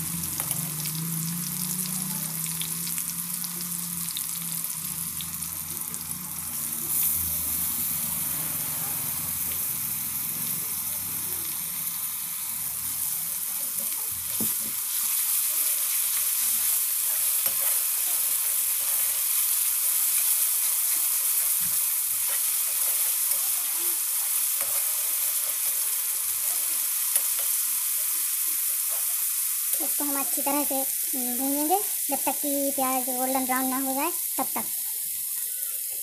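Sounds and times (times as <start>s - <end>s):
paste sizzling in hot oil: 0.0s - 36.0s
spatula scraping a pan: 14.4s - 23.6s, 24.5s - 27.6s.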